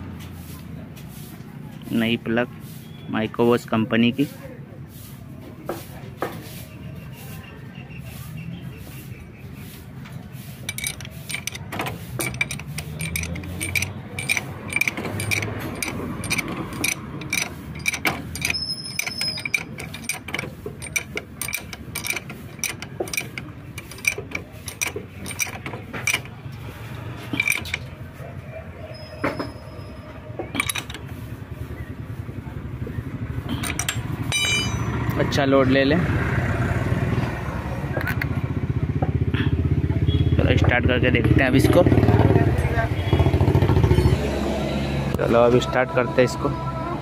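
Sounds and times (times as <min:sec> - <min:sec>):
spanner clicking on metal: 0:10.6 - 0:27.9, 0:30.6 - 0:31.3, 0:33.5 - 0:35.0.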